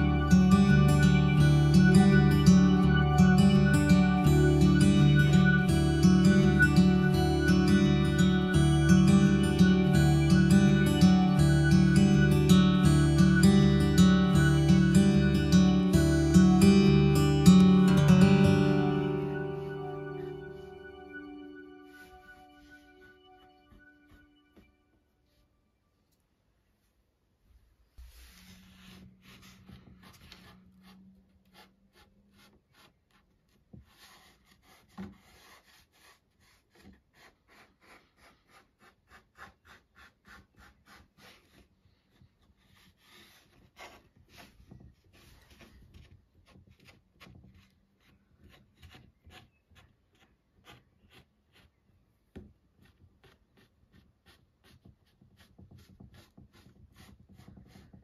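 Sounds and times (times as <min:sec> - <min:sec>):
fingertips rubbing clay: 0:28.0 - 0:58.0.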